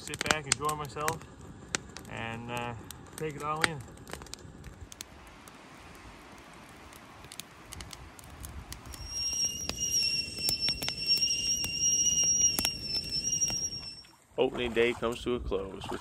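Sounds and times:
campfire crackling and popping: 0:00.0 - 0:14.0
kettle whistling: 0:08.4 - 0:14.1.

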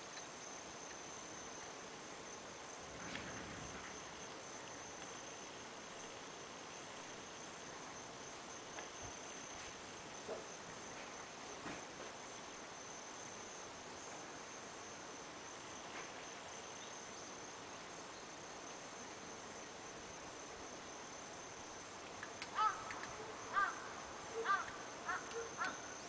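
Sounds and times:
insects chirring: 0:00.0 - 0:26.0
faint clicks: 0:22.0 - 0:23.2, 0:24.6 - 0:25.8.

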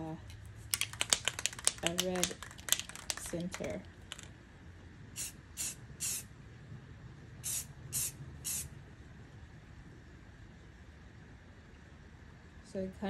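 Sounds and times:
aerosol spray can hissing: 0:00.8 - 0:04.3, 0:05.2 - 0:06.3, 0:07.4 - 0:08.7.

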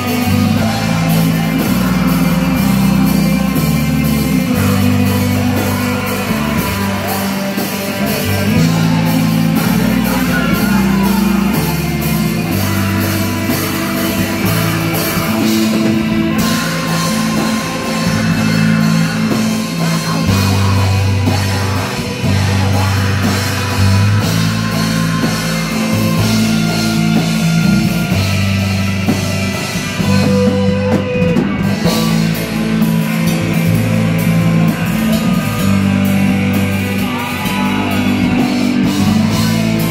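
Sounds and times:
person singing into microphone: 0:00.0 - 0:25.9, 0:36.8 - 0:39.9
bass guitar: 0:00.0 - 0:39.9
distorted electric guitars: 0:00.0 - 0:39.9
drum kit: 0:00.0 - 0:39.9.

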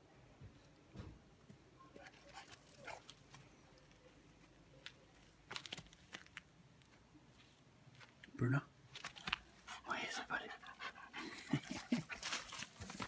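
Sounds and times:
puppy paws digging dry dirt: 0:02.0 - 0:08.3, 0:08.9 - 0:13.0.

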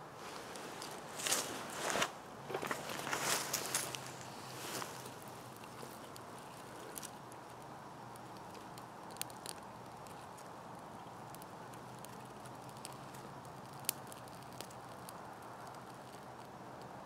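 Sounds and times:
fire crackling with snaps: 0:00.2 - 0:17.0.

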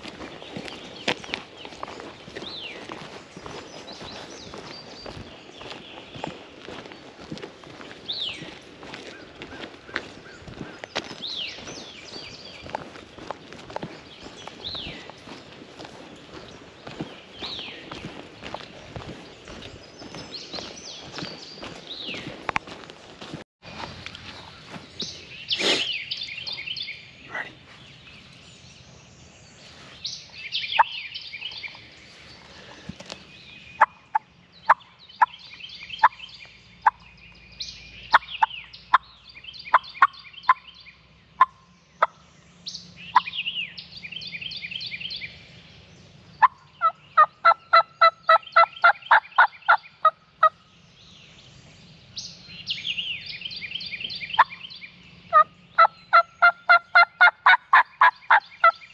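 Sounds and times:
turkey clucking: 0:41.4 - 0:42.1, 0:46.4 - 0:50.5, 0:55.3 - 0:58.8
turkey gobbling: 0:46.4 - 0:49.8, 0:55.3 - 0:58.4
turkey yelps: 0:56.1 - 0:58.4.

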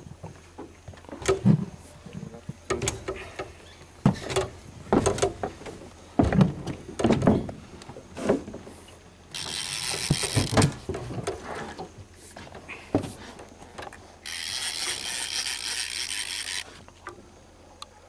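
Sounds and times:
fishing reel creaking and clicking: 0:09.3 - 0:10.9, 0:14.2 - 0:17.1.

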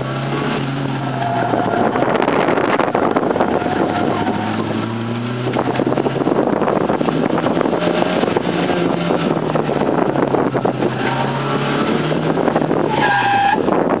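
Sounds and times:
tyres squealing: 0:00.0 - 0:05.2, 0:12.8 - 0:13.7
car engine running hard: 0:00.0 - 0:14.0
wind rushing past: 0:01.4 - 0:12.9.

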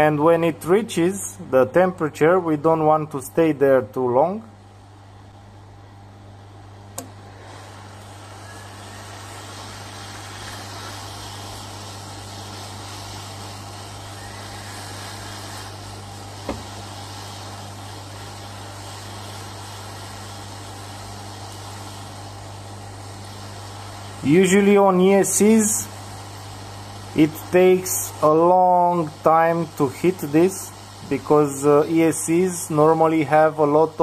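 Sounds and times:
low mains hum: 0:00.0 - 0:34.0
hot air gun blowing: 0:07.0 - 0:34.0.

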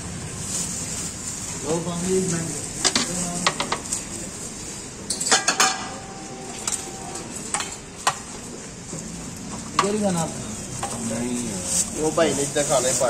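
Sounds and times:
metal utensils clinking on pots: 0:05.1 - 0:08.3.

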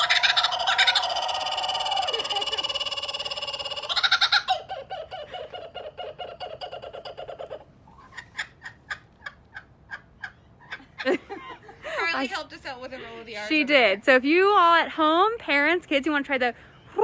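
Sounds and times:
kookaburra laughing call: 0:00.0 - 0:11.4.

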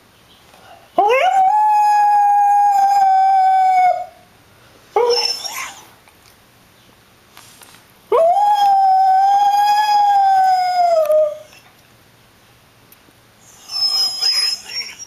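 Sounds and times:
dog howling: 0:01.0 - 0:04.2, 0:05.0 - 0:05.9, 0:08.1 - 0:11.6.

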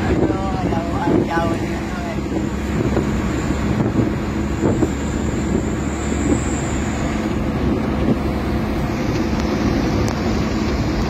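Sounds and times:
car road noise at highway speed: 0:00.0 - 0:11.0.

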